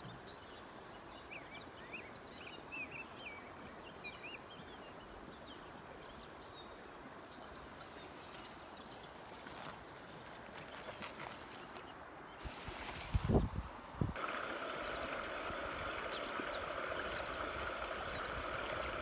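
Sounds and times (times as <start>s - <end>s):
brook water flowing: 3.5s - 19.0s
small bird chirping: 14.7s - 19.0s.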